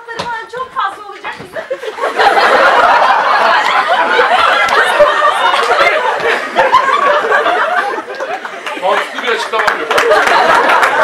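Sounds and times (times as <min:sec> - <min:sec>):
audience laughing: 0:01.6 - 0:11.0.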